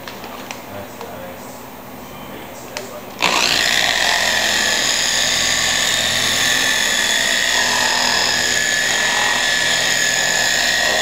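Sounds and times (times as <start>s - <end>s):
car polisher motor whine: 3.2s - 11.0s.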